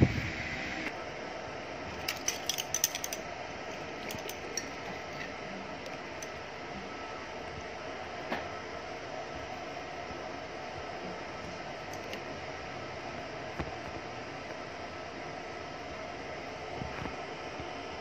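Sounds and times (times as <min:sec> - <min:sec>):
steady background hum: 0:00.0 - 0:18.0
kitchen items clinking: 0:02.0 - 0:03.2.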